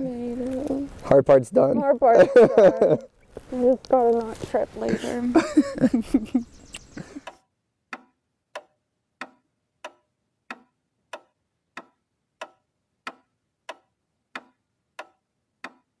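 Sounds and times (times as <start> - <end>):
clock ticking: 7.2 - 15.9.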